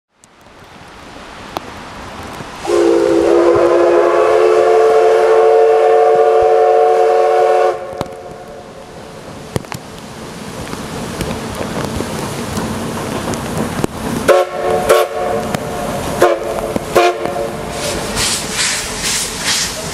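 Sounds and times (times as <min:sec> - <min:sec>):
rain hissing: 0:00.1 - 0:19.9
steam whistle blast: 0:02.6 - 0:08.6, 0:14.3 - 0:15.4, 0:16.2 - 0:19.8.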